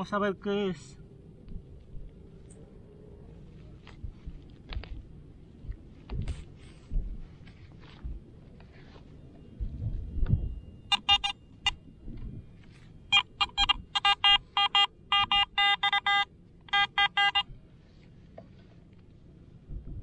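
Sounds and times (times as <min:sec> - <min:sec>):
scuffing of soil and grass: 0:03.4 - 0:09.8
metal detector beeping: 0:08.6 - 0:17.6.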